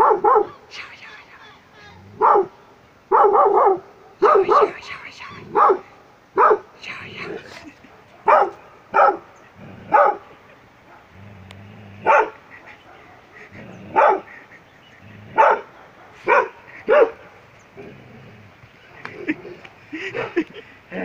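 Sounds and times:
dog barking: 0:00.0 - 0:00.6, 0:02.2 - 0:04.8, 0:05.5 - 0:06.7, 0:07.8 - 0:09.3, 0:09.9 - 0:10.3, 0:12.0 - 0:14.4, 0:15.4 - 0:17.3.

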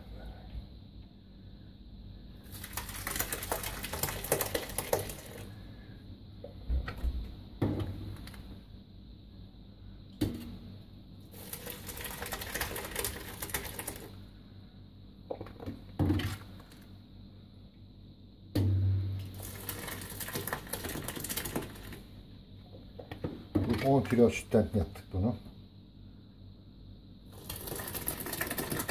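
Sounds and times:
liquid pouring and splashing: 0:02.4 - 0:05.6, 0:11.3 - 0:14.1, 0:19.2 - 0:22.1, 0:27.3 - 0:28.9.

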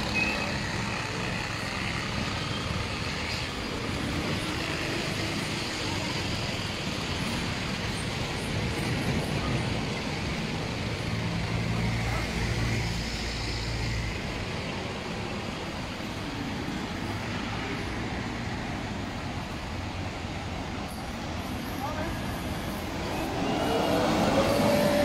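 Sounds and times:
road and outdoor noise: 0:00.0 - 0:25.0.

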